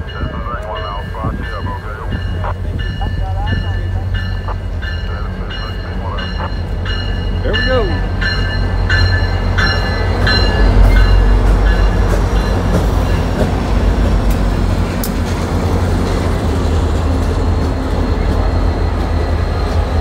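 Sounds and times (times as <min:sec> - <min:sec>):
train passing with loud rumble: 0:00.0 - 0:20.0.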